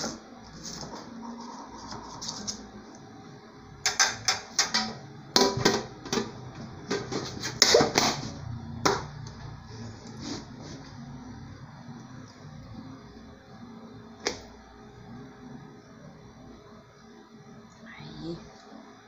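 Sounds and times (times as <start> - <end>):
aluminium pans clanking together: 3.8 - 8.2.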